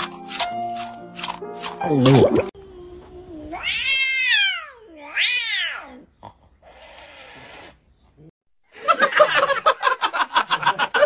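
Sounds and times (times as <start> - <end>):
cat yowling: 3.6 - 6.0
cat hissing: 6.6 - 7.8.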